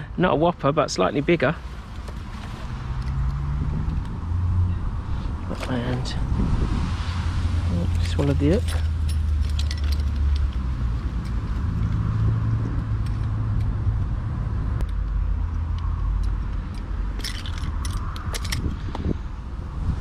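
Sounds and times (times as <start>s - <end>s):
rustles and clicks of fishing tackle: 1.6s - 4.2s, 5.3s - 6.1s, 7.8s - 13.8s, 14.8s - 19.1s
low rumble: 3.0s - 20.0s.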